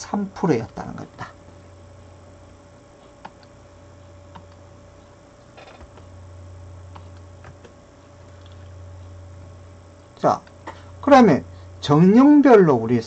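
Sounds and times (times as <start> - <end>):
low electrical hum: 0.0 - 13.0
computer mouse clicks: 4.3 - 4.6.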